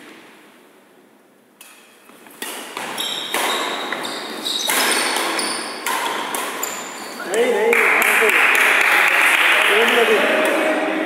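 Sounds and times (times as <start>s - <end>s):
racket hitting shuttlecock: 1.6s - 9.4s, 10.3s - 10.9s
shoes squeaking on floor: 1.8s - 7.5s.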